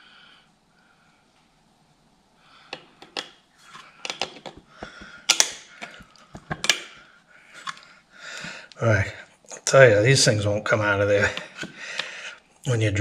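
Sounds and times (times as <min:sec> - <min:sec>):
metallic clicks of hand tools: 0:05.3 - 0:05.6.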